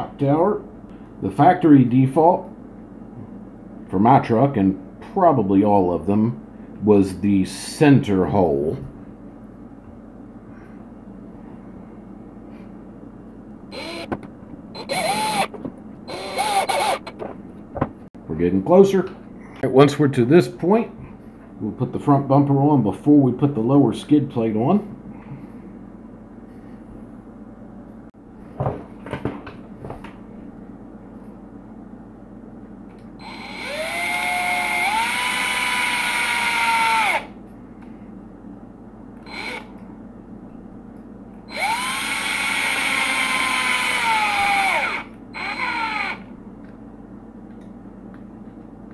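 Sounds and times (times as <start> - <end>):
low background hum: 0.0 - 48.9
cordless drill driving screw: 13.7 - 14.1, 14.8 - 15.5, 16.1 - 17.2, 33.2 - 37.3, 39.3 - 39.7, 41.5 - 46.2.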